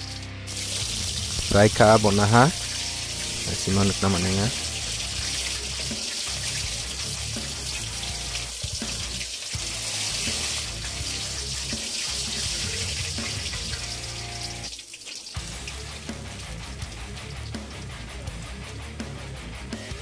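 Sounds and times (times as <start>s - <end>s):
background music: 0.0s - 20.0s.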